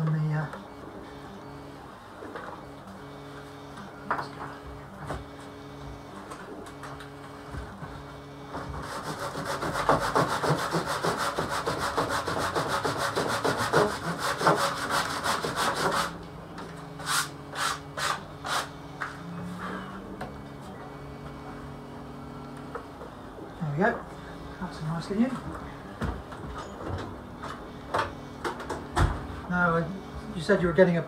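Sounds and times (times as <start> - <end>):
hand tool rasping board edge: 8.7 - 16.2.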